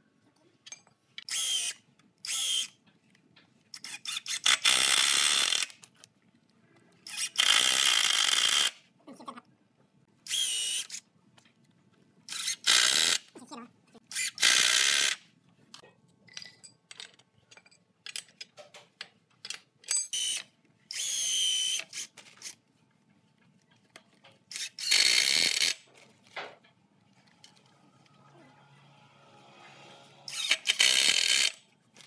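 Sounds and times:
impact driver driving screws: 30.3 - 31.6.

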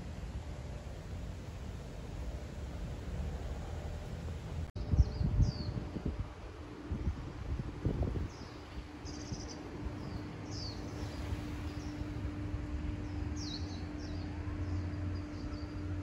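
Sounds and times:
faint steady hum: 0.0 - 16.0
low outdoor rumble: 0.0 - 16.0
birds chirping: 8.2 - 16.0.

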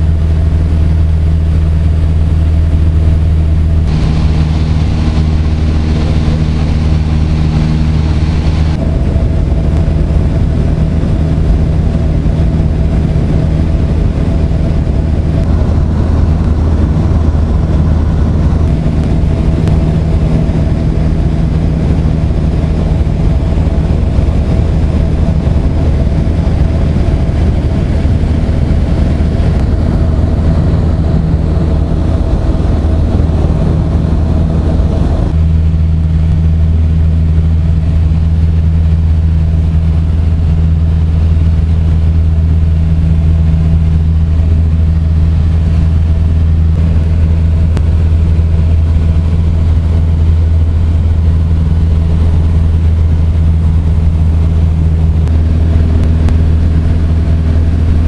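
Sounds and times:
light aircraft engine droning: 0.0 - 58.0.

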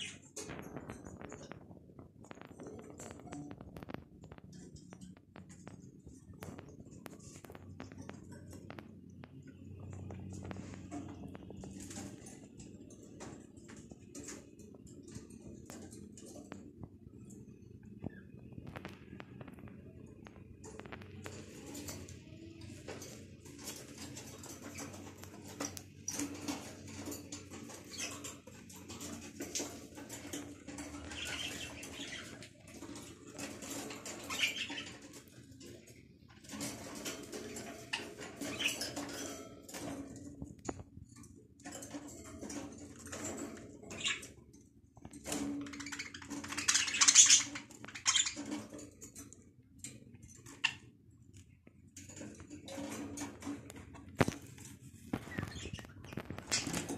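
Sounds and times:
budgerigars chattering and chirping: 30.7 - 32.5, 33.6 - 35.1, 45.6 - 48.5.

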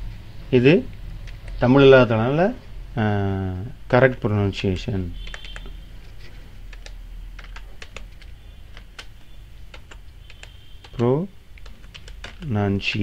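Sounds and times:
low steady hum: 0.0 - 13.0
keyboard key clicks: 5.2 - 5.7, 6.7 - 13.0.

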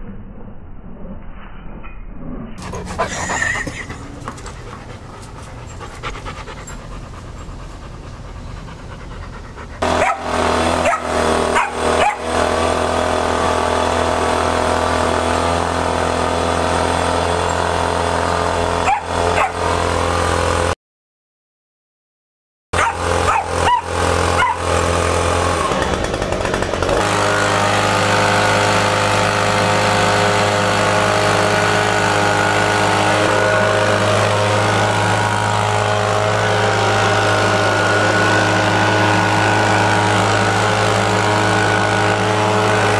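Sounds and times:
dogs yipping and barking: 2.6 - 12.3, 18.8 - 19.8, 22.8 - 24.9
motor hum: 2.6 - 20.7, 22.8 - 42.9.

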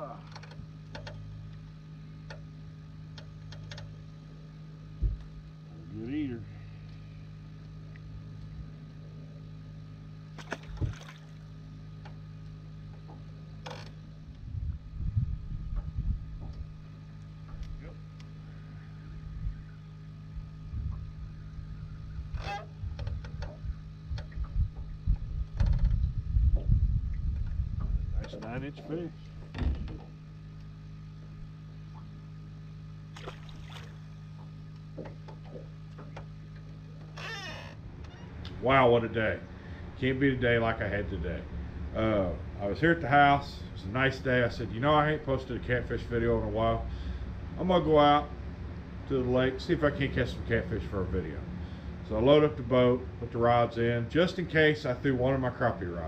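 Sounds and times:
steady low hum: 0.0 - 56.0
dull thump: 10.4 - 11.2.

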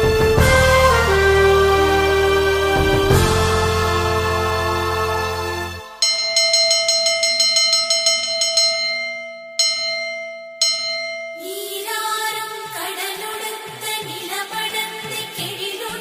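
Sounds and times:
song music: 0.0 - 7.0
metal bell ringing: 5.9 - 11.7.

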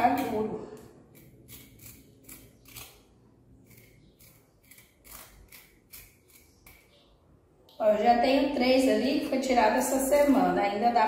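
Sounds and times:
knife scraping avocado pit: 0.0 - 7.1.

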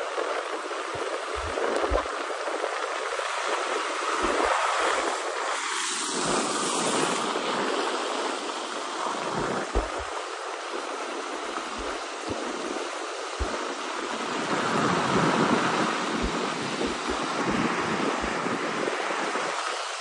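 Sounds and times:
wind blowing across microphone: 0.0 - 20.0
low thumps of wind gusts: 6.2 - 19.7.

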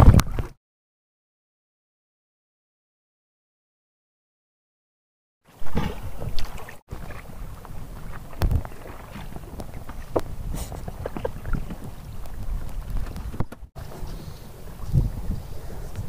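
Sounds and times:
wind on microphone: 0.0 - 0.6, 5.6 - 16.0
water splashes: 5.5 - 16.0.

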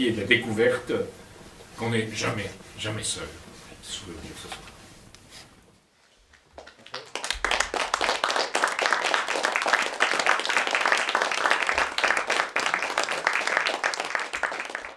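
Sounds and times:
audience applauding: 6.6 - 14.9.

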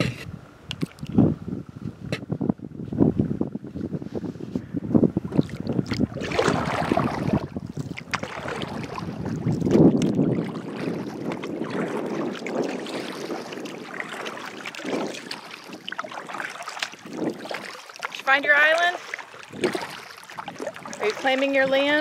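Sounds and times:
water splashing against hull: 0.0 - 22.0
wind buffeting microphone: 0.0 - 22.0
paddle strokes: 5.3 - 22.0.

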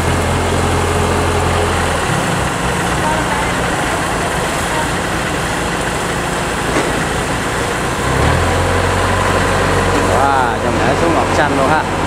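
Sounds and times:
deep steady drone: 0.0 - 12.0
diesel engine running: 0.0 - 12.0.

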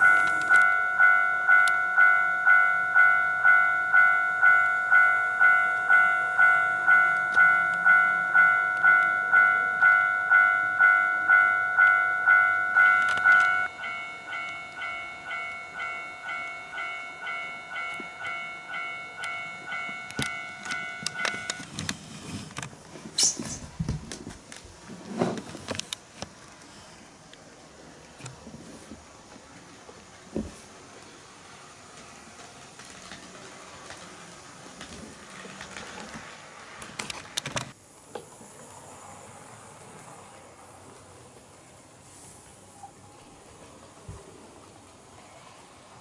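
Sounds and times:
toy crossing alarm dinging: 0.0 - 21.7
model train clicking on track: 31.0 - 37.8.

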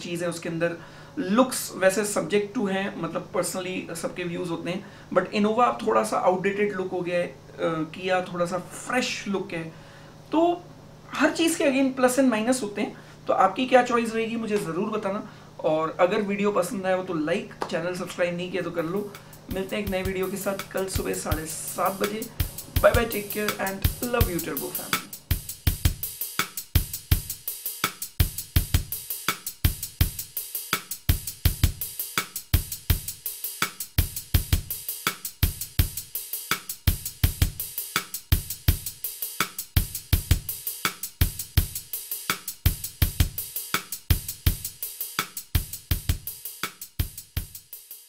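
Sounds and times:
drum kit beat: 17.5 - 48.0
background music: 18.6 - 26.7.

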